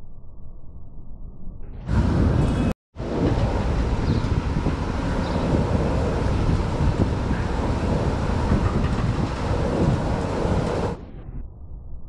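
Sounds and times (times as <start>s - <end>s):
wind buffeting microphone: 1.8s - 11.2s.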